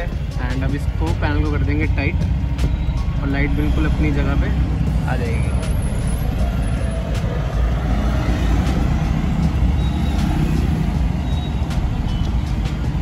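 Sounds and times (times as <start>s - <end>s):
vehicle rumble: 0.0s - 13.0s.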